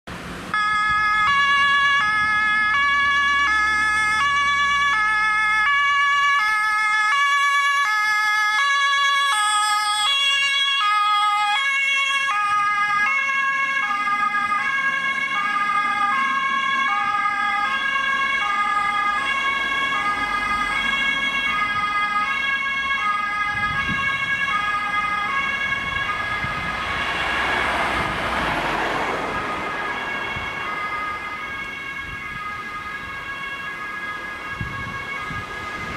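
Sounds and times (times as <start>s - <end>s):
road and engine noise: 0.0s - 35.9s
ambulance two-tone siren: 0.5s - 35.9s.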